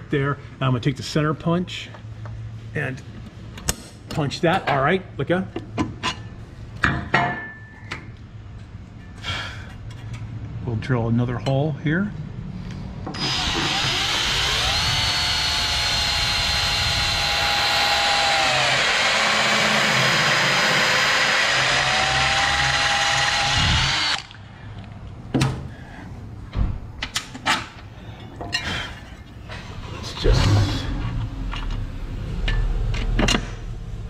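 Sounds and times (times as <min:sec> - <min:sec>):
cordless drill boring metal: 0:13.2 - 0:24.4.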